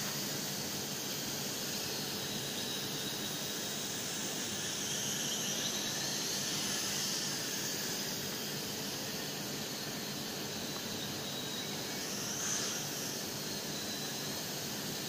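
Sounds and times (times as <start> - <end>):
toy drone propellers whining: 10.6 - 14.0.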